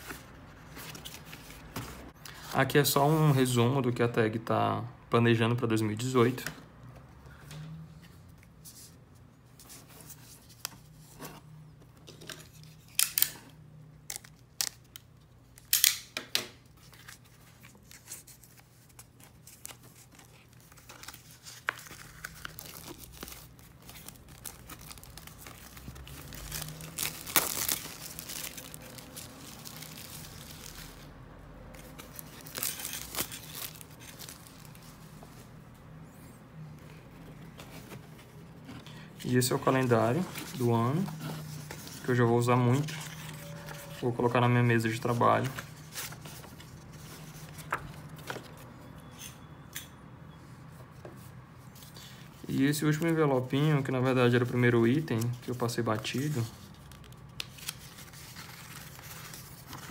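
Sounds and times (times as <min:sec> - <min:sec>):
paper rustling: 0:16.7 - 0:31.1, 0:31.7 - 0:35.5, 0:37.3 - 0:48.6, 0:54.3 - 0:59.9.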